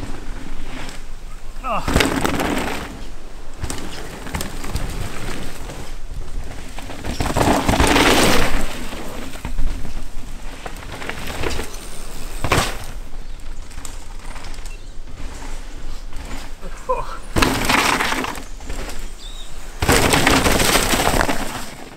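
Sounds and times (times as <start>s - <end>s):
bike tyres rolling on dirt: 0.0s - 21.9s
wheels landing knocks: 17.2s - 19.1s, 19.8s - 21.9s.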